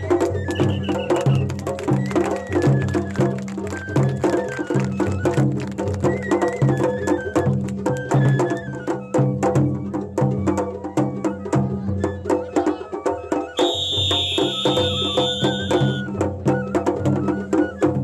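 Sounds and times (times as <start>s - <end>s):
bamboo flute melody: 0.0s - 18.0s
fast drum strikes: 13.6s - 16.2s.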